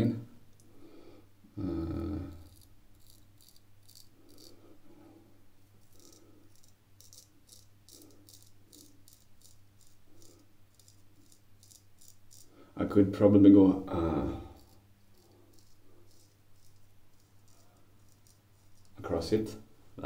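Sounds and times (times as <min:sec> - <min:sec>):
razor scraping stubble: 0:02.3 - 0:04.8, 0:05.8 - 0:12.5, 0:14.4 - 0:19.5.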